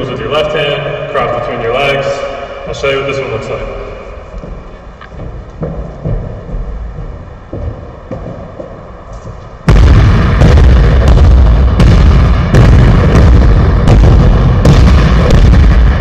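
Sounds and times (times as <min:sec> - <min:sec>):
basketball bouncing on wooden floor: 0:04.4 - 0:09.4.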